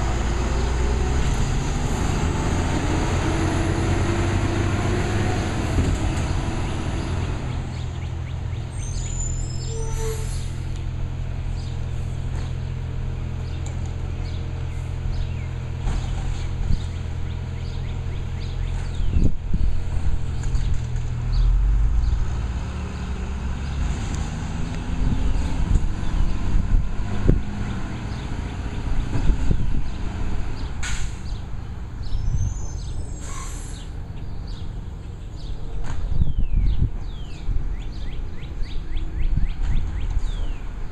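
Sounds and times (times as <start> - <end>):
diesel engine droning: 0.0 - 36.0
bird chirping: 7.5 - 10.0
short hisses: 33.2 - 33.9.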